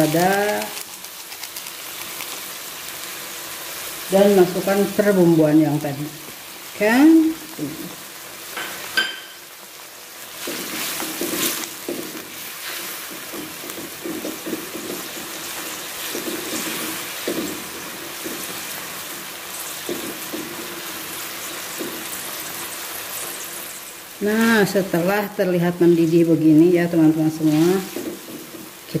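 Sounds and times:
sauce sizzling in a wok: 0.0s - 29.0s
spatula scraping a pan: 10.4s - 20.8s.

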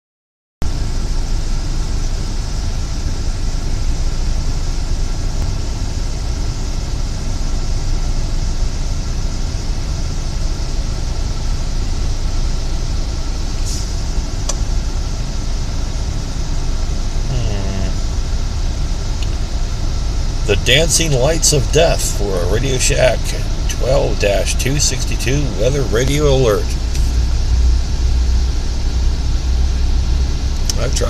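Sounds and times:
faint hum: 0.7s - 31.0s
low rumble: 0.7s - 31.0s
hiss: 13.6s - 14.2s.

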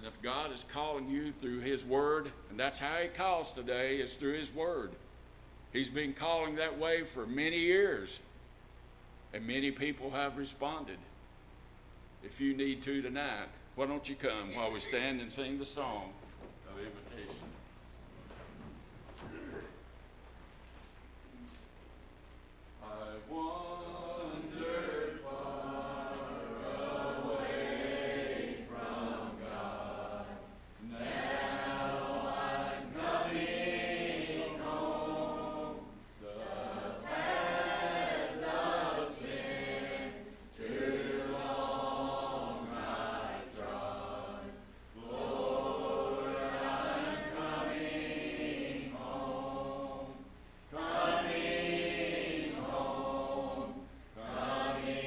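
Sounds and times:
congregation singing a hymn: 22.8s - 55.0s.

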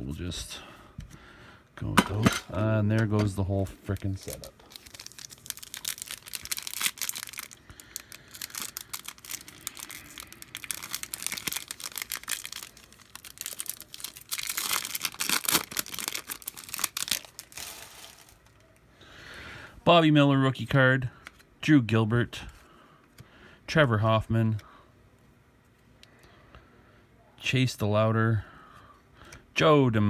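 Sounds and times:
cards rustling: 3.2s - 18.8s
foil wrapper crinkling and tearing: 3.8s - 18.8s.

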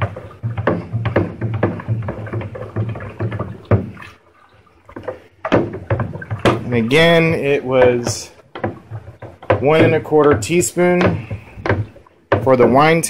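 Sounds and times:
liquid swishing from stirring: 0.0s - 12.5s.

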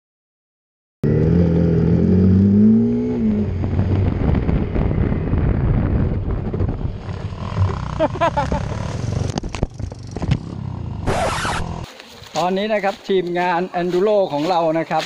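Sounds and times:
motorcycle engine accelerating: 1.0s - 11.9s.

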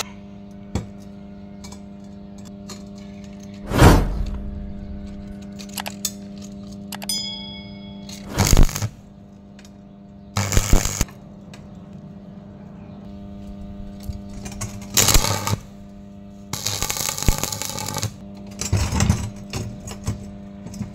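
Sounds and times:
steady hum: 2.7s - 11.1s
metallic clink with ringing: 7.0s - 8.3s
arc welding crackling: 8.2s - 9.0s, 10.4s - 11.1s, 13.9s - 15.8s, 16.5s - 18.2s.

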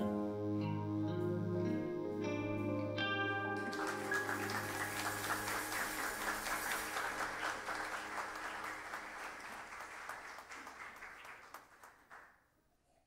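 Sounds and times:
audience applauding: 3.5s - 12.4s.

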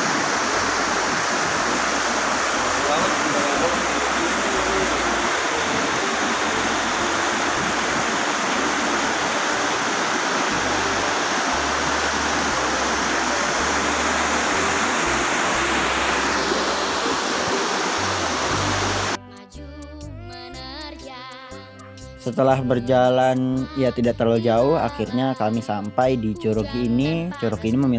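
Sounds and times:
stream rushing over boulders: 0.0s - 19.2s.

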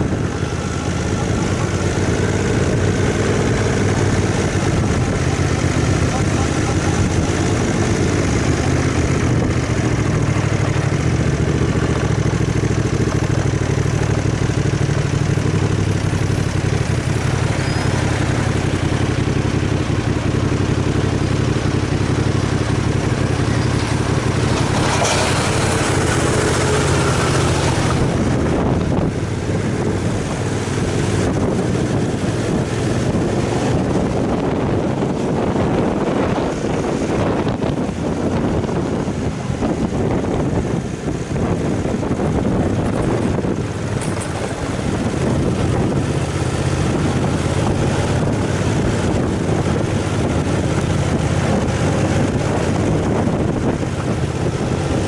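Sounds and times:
motorcycle engine idling and revving: 0.0s - 55.0s.

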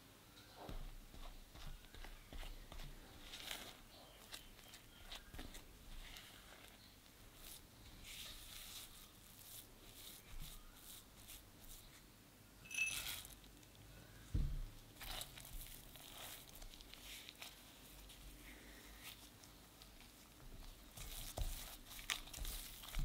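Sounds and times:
nuts clinking into glass bowl: 12.6s - 13.3s
dull thump: 14.3s - 14.7s.

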